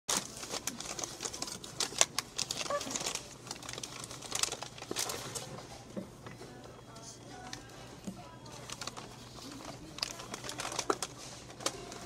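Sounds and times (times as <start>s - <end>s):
paper bag rustling and crinkling: 0.1s - 5.9s, 6.6s - 12.0s.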